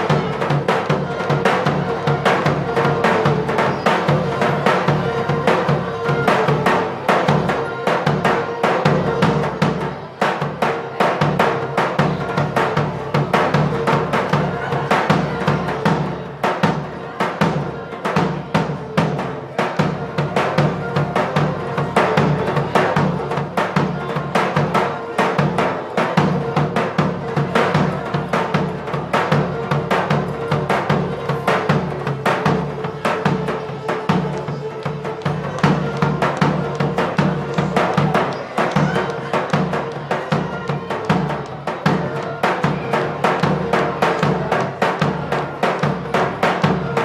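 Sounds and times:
large drum beating fast rhythm: 0.0s - 47.0s
wind instrument melody: 0.0s - 47.0s.

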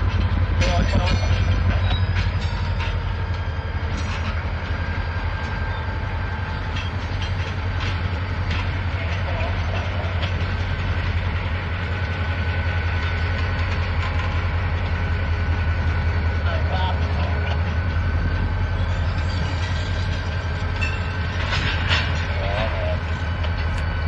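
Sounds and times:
locomotive engine rumble: 0.0s - 24.0s
wheels clanking on rails: 0.0s - 24.0s.

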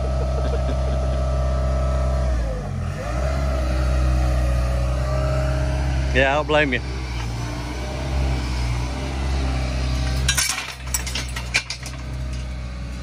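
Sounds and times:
excavator diesel engine running: 0.0s - 13.0s
metallic clanks and clinks: 10.0s - 12.6s.

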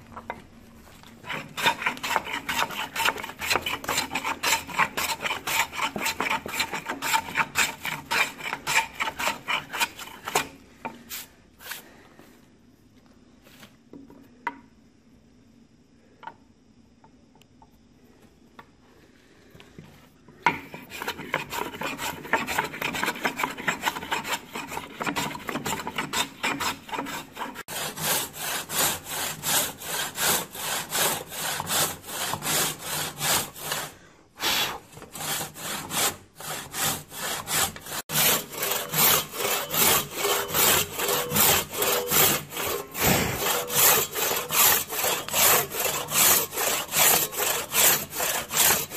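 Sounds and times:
hand saw cutting wood: 1.2s - 10.6s, 20.5s - 48.9s.

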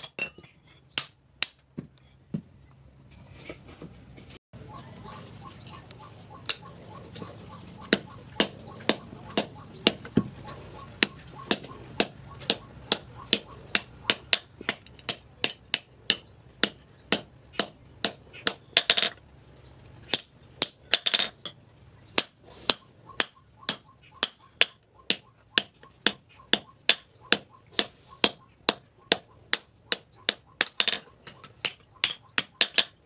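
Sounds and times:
hammer striking hot steel on anvil: 22.2s - 31.0s.

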